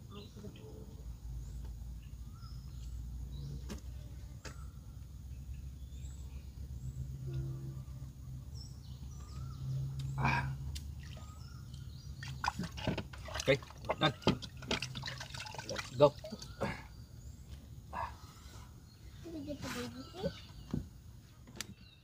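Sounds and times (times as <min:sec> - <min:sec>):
low outdoor rumble: 0:00.0 - 0:22.0
faint bird chirps: 0:00.1 - 0:12.7, 0:15.4 - 0:22.0
rustle: 0:18.3 - 0:22.0.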